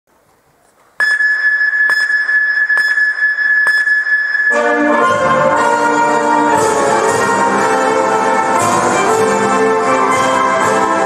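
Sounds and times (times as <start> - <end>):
high whistle-like tone: 1.0 - 5.2
brass band music: 4.6 - 11.0.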